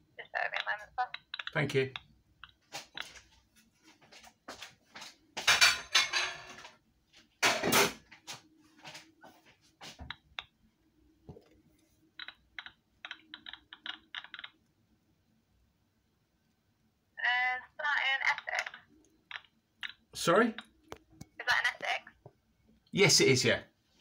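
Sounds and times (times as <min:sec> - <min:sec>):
dishes and cutlery clattering: 0:05.4 - 0:06.8, 0:07.4 - 0:08.0.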